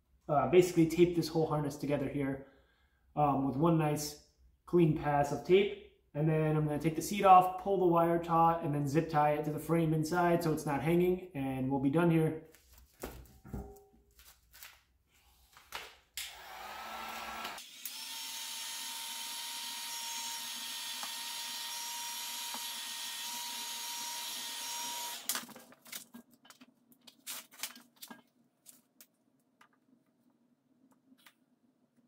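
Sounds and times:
heat gun blowing: 16.2s - 25.4s.

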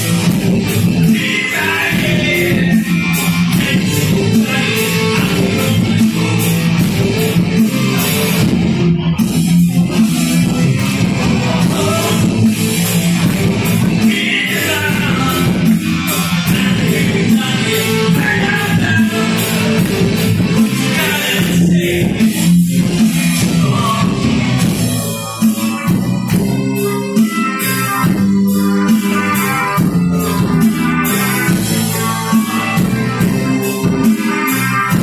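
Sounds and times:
drum beat with cymbals: 0.0s - 35.0s
electric guitar: 0.0s - 35.0s
man singing: 0.9s - 6.7s, 11.2s - 24.6s.

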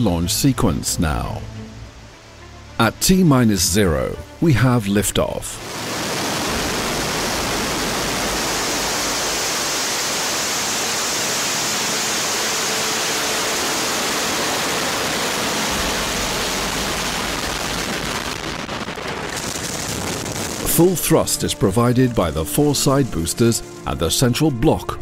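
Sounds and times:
rocket engines firing: 5.6s - 24.0s.

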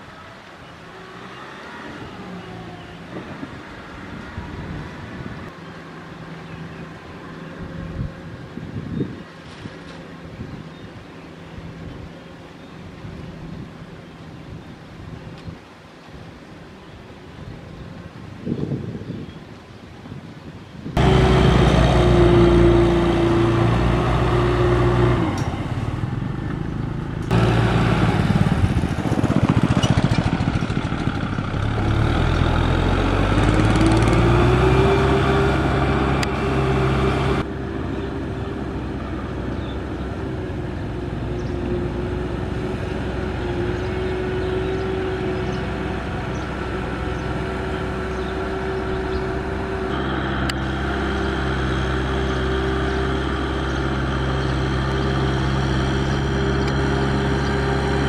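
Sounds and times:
tractor diesel engine revving: 21.0s - 58.0s.

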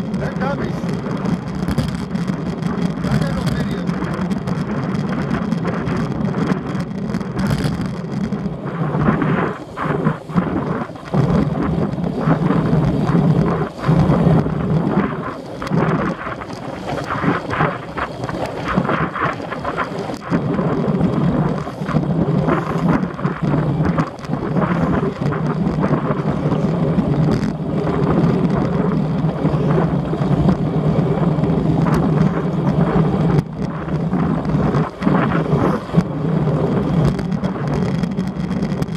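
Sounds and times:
wind buffeting microphone: 0.0s - 38.9s.

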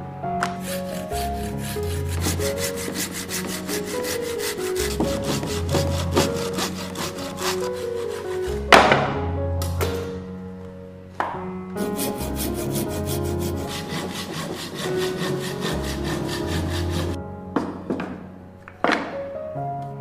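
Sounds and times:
hand saw cutting log: 0.6s - 8.8s, 11.8s - 17.2s.

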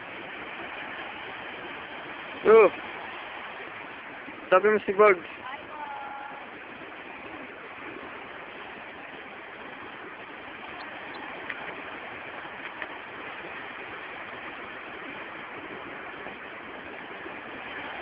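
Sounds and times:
sea surf washing onto beach: 0.0s - 18.0s
faint ticks: 12.6s - 13.0s.

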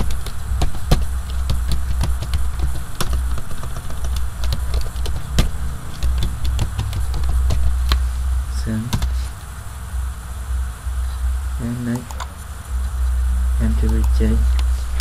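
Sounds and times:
keyboard keys clicking: 0.0s - 8.0s
steady low hum: 0.0s - 15.0s.

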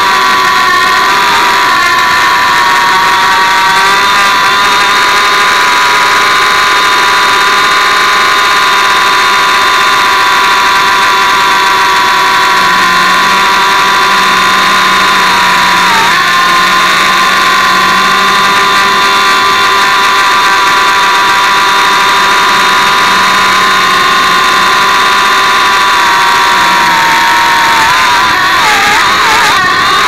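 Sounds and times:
low hum: 0.0s - 30.0s
quadcopter motors whining: 0.0s - 30.0s.

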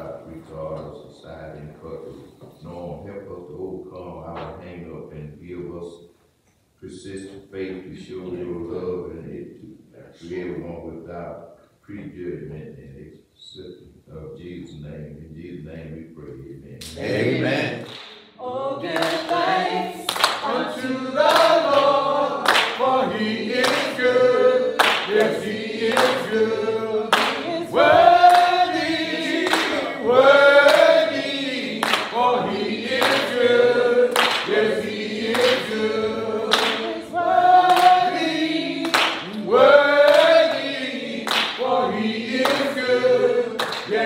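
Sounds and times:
choir singing gospel: 16.8s - 44.0s
hand claps: 17.8s - 18.3s, 19.0s - 20.6s, 21.2s - 22.9s, 23.5s - 24.0s, 24.8s - 26.3s, 27.1s - 29.8s, 30.6s - 32.2s, 32.8s - 33.5s, 34.1s - 35.8s, 36.5s - 37.0s, 37.6s - 38.2s, 38.8s - 41.7s, 42.4s - 42.7s, 43.6s - 44.0s.

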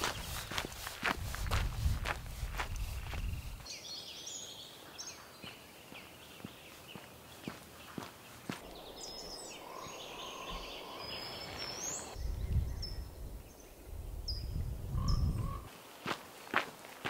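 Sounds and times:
wind buffeting microphone: 0.0s - 3.7s, 8.6s - 15.7s
bird chirps: 3.2s - 15.7s.

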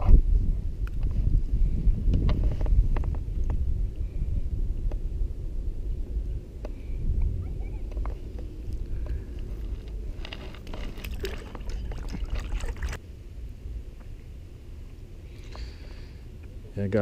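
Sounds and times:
low wind rumble on microphone: 0.0s - 17.0s
water splashing and sloshing: 10.5s - 13.0s.

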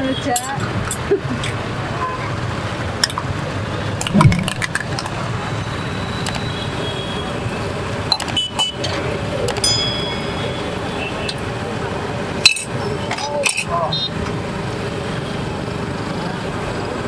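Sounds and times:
street stall background hum: 0.0s - 17.0s
loud thump: 4.1s - 4.7s
ladle clinking against pots: 12.4s - 12.8s.

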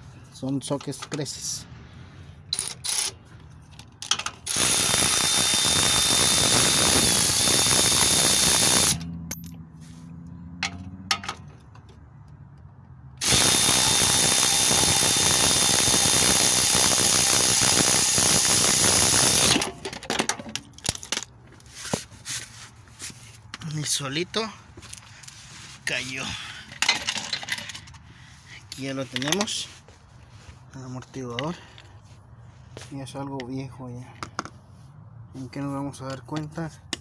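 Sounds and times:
electric ratchet whining: 4.0s - 9.1s, 13.2s - 19.9s.

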